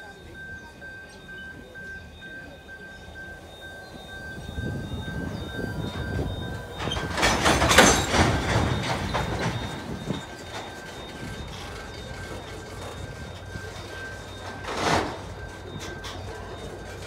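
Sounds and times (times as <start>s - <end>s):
train wheels rumbling on rails: 0.0s - 17.0s
wagons clanking and clattering: 3.9s - 17.0s.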